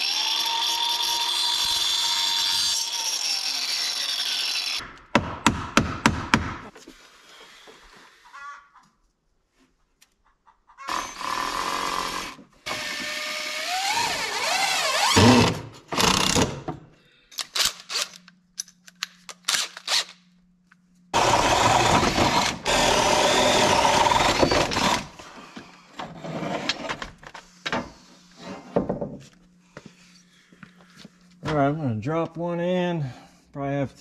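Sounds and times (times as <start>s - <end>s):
cordless drill boring into wood: 0.0s - 4.8s, 10.9s - 16.4s, 21.2s - 25.2s.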